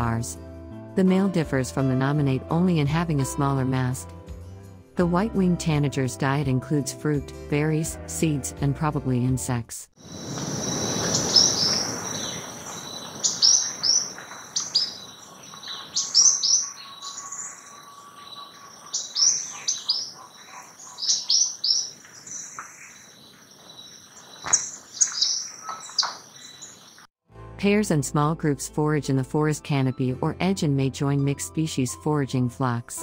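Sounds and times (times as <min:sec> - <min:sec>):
bird calling sharp high notes: 0:10.1 - 0:23.2.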